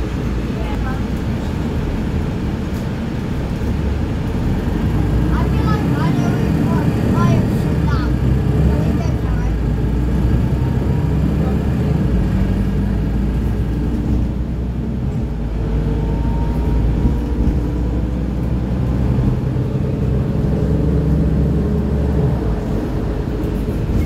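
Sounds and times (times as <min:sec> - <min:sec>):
bus engine and road drone: 0:00.0 - 0:24.0.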